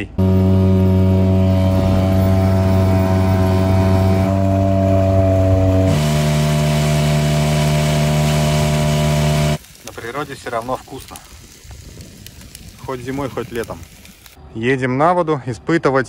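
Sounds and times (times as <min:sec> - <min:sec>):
outboard motor running: 0:00.2 - 0:09.6
wind and spray hiss: 0:05.4 - 0:14.4.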